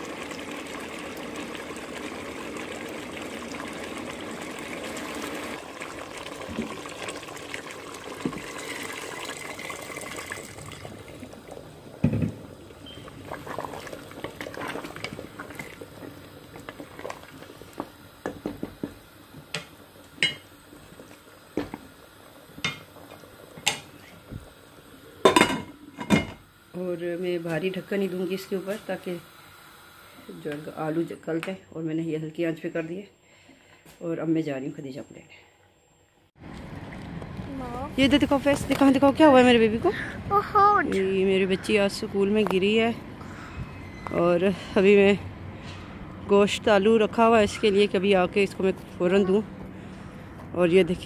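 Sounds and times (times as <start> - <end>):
water running: 0.0 - 31.2
metal pots and utensils clinking: 25.2 - 26.4.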